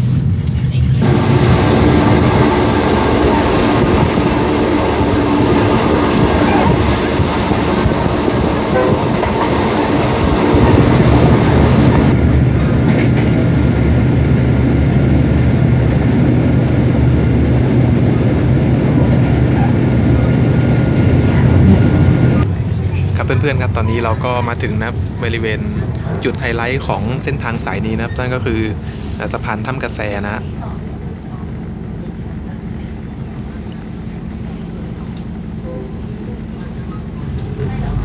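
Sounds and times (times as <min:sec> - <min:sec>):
train wheels rumbling: 0:00.0 - 0:38.0.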